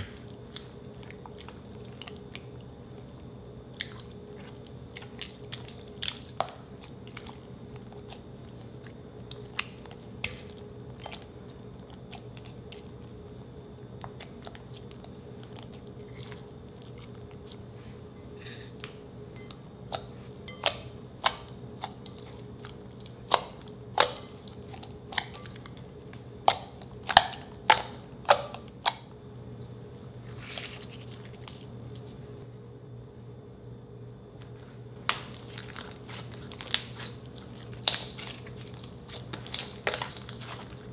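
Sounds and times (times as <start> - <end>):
faint steady hum: 0.0 - 40.9.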